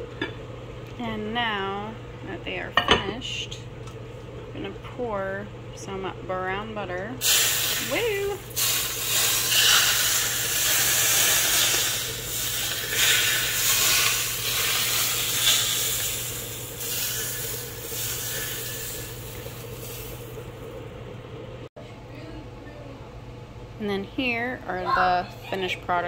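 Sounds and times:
butter sizzling on steaks: 0:07.2 - 0:20.4.

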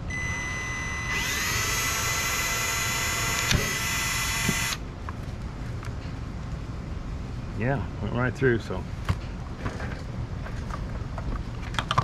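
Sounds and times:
electric drill whining: 0:00.0 - 0:04.8.

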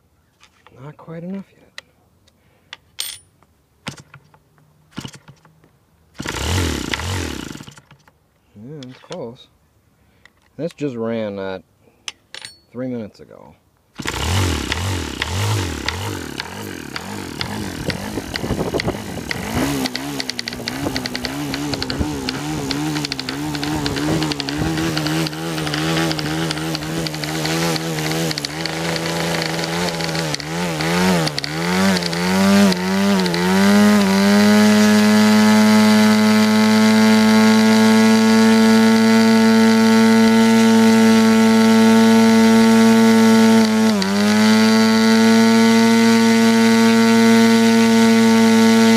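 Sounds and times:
model aircraft engine running: 0:06.2 - 0:07.8, 0:14.0 - 0:48.9.

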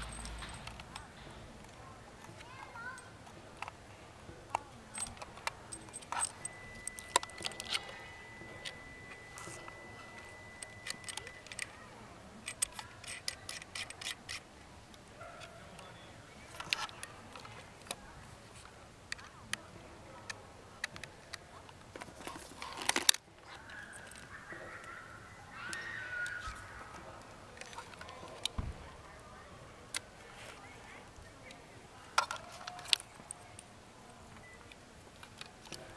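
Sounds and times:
hands handling cables and plugs: 0:04.5 - 0:11.8, 0:12.4 - 0:14.4, 0:16.5 - 0:19.6, 0:20.3 - 0:24.4, 0:32.2 - 0:33.6.

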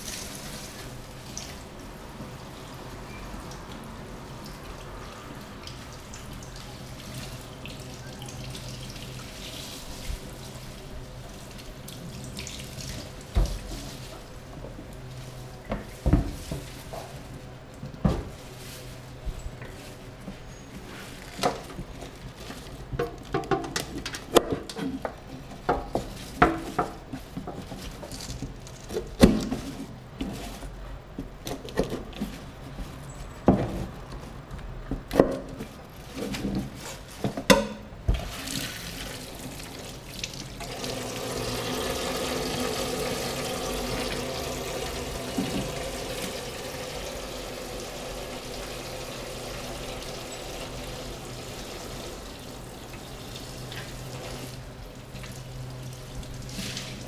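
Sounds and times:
tap water splashing into sink: 0:40.2 - 0:52.1.

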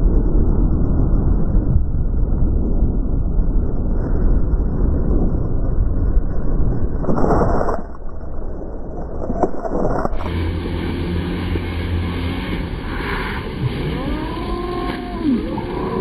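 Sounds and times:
racing snowmobile engines droning: 0:10.2 - 0:16.0
snowmobile engines rumbling: 0:10.2 - 0:16.0.

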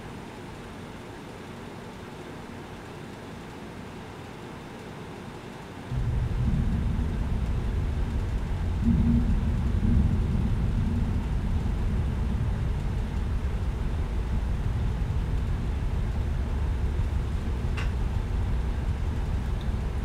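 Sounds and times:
low rumbling noise: 0:05.9 - 0:20.0.

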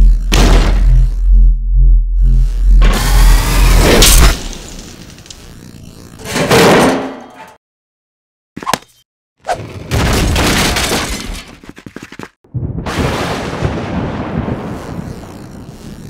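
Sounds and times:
crackling electric lightning zap: 0:02.8 - 0:06.2, 0:12.9 - 0:16.0.

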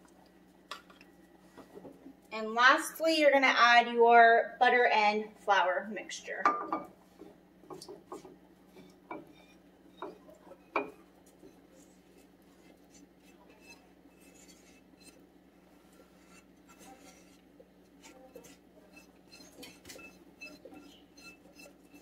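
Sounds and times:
spoon scraping skillet: 0:06.8 - 0:22.0
spoon knocking against pan: 0:10.0 - 0:11.0.

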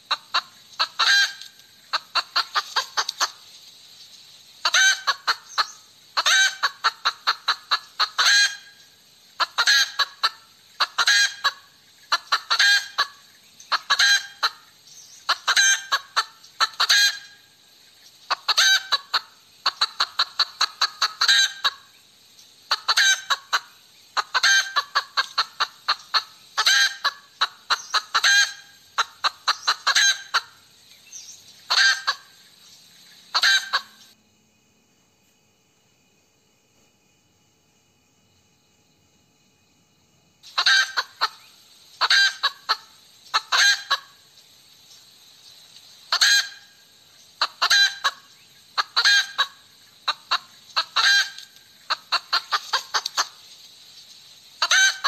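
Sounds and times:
hen cackling: 0:00.0 - 0:03.4, 0:04.6 - 0:17.5, 0:18.3 - 0:22.0, 0:22.6 - 0:30.7, 0:31.6 - 0:32.5, 0:33.3 - 0:34.2, 0:40.5 - 0:44.3, 0:46.1 - 0:53.4, 0:54.6 - 0:55.0.

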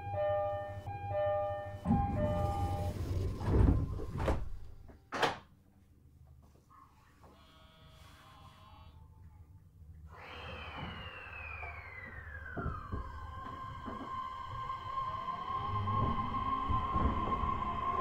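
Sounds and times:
train door chime: 0:00.0 - 0:03.3
sliding doors closing with bang: 0:01.8 - 0:05.4, 0:11.6 - 0:18.0.

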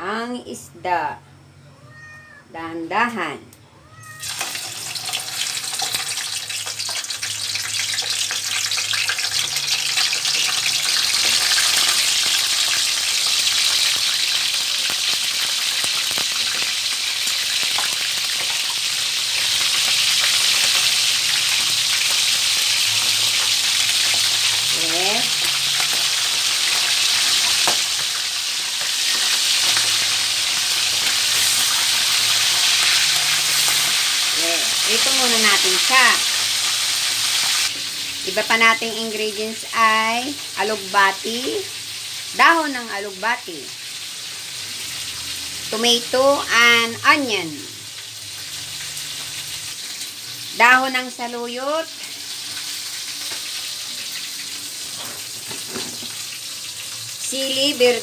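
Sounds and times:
fish sizzling in hot oil: 0:04.1 - 0:58.0.

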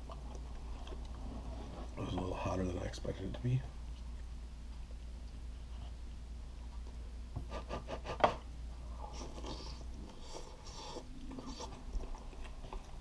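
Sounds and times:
person chewing: 0:00.0 - 0:02.0, 0:09.0 - 0:13.0.

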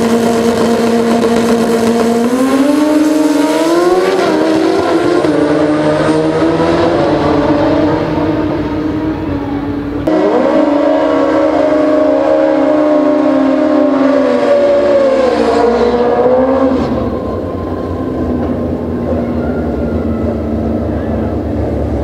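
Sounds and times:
motorcycle engine at high revs: 0:00.0 - 0:09.3, 0:09.9 - 0:17.4.

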